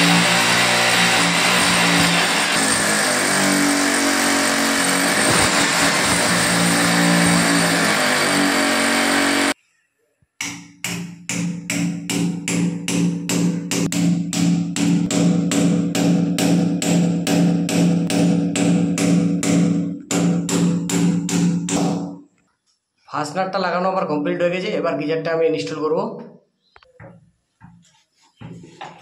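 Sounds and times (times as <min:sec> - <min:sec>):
hammer drill boring into masonry: 0:00.0 - 0:09.6
hammer striking metal anchor: 0:10.4 - 0:22.1.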